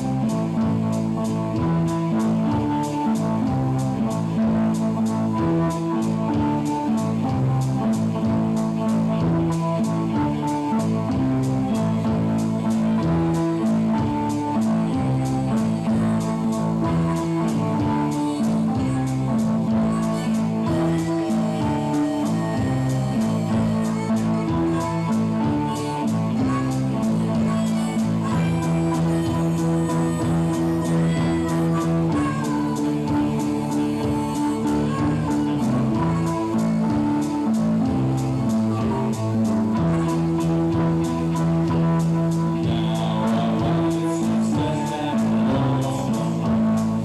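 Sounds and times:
droning band notes: 0:00.0 - 0:47.0
ticking beat: 0:00.0 - 0:47.0.

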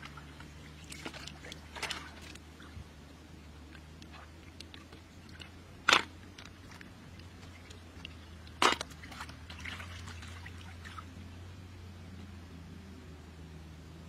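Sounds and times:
hands dabbling in muddy water: 0:00.0 - 0:02.8, 0:06.5 - 0:11.1
loud water splashes: 0:00.0 - 0:02.8, 0:08.5 - 0:11.1
water drips and trickles: 0:00.0 - 0:02.9, 0:06.2 - 0:11.3.

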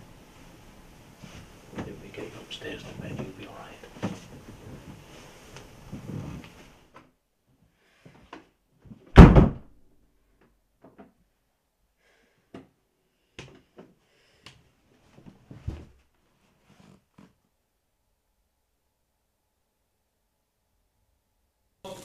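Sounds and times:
faint knocks and rustles: 0:01.1 - 0:09.4, 0:10.3 - 0:11.2, 0:12.5 - 0:17.5
wooden door slamming: 0:09.1 - 0:09.7.

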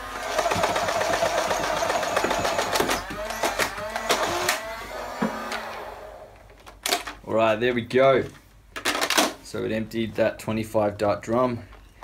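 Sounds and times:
flywheel whine: 0:00.0 - 0:06.4
toy blaster firing darts: 0:00.4 - 0:05.8.

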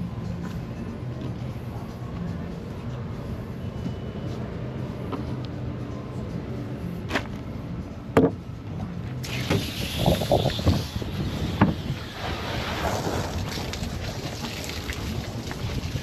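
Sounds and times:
steady low hum: 0:00.0 - 0:13.6
wind on microphone: 0:09.4 - 0:14.1.

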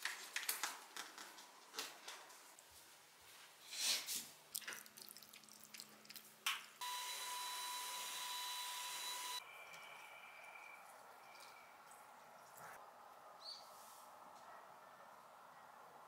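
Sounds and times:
vacuum cleaner whine: 0:06.8 - 0:09.4.

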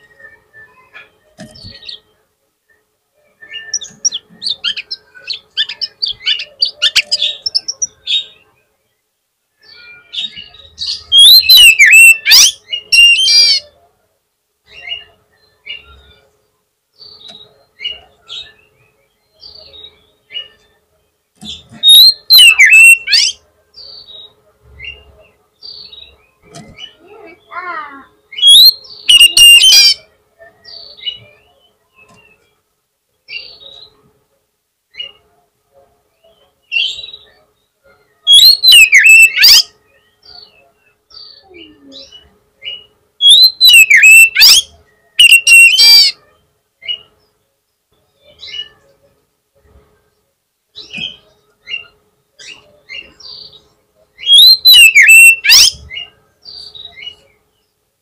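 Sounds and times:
bird singing whistled notes: 0:00.0 - 0:02.0, 0:02.7 - 0:08.4, 0:09.6 - 0:13.6, 0:21.8 - 0:24.4, 0:28.3 - 0:31.2, 0:38.2 - 0:40.5, 0:41.2 - 0:46.2, 0:54.2 - 0:57.2
soft bird chirps: 0:21.4 - 0:32.6, 0:36.2 - 0:47.3, 0:50.1 - 0:57.7.

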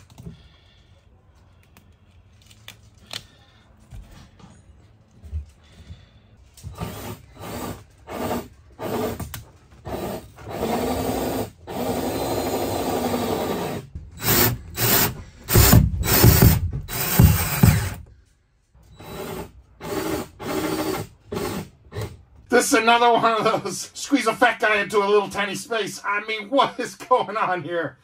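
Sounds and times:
cordless drill driving screws: 0:06.7 - 0:18.1.

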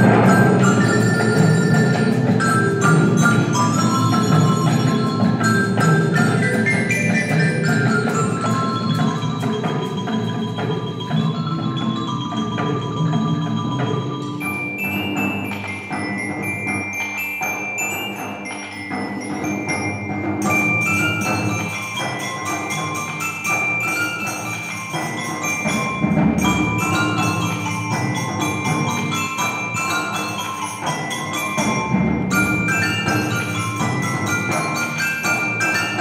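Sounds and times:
low drums: 0:00.0 - 0:17.0
mallet keyboard instruments ringing: 0:00.0 - 0:36.0.

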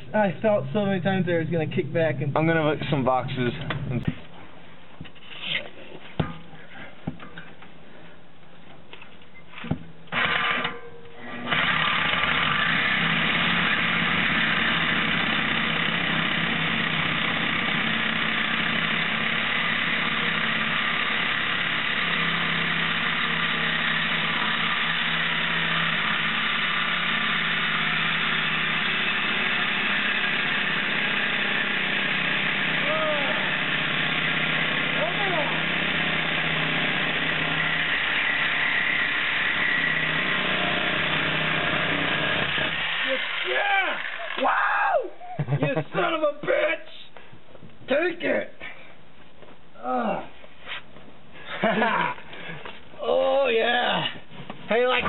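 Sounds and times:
power tool cutting steel pipe: 0:10.1 - 0:44.5.

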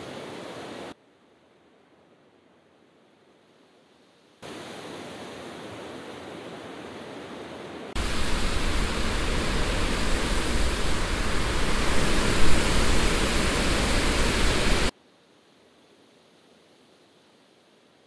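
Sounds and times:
deep rumble: 0:08.0 - 0:14.9
static-like noise: 0:08.0 - 0:18.0.

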